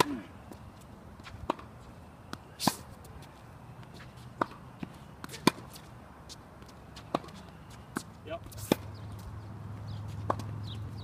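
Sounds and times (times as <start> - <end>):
tennis ball struck by rackets: 0.0 - 0.2, 1.2 - 3.0, 3.8 - 5.9, 6.6 - 9.0, 10.1 - 11.0.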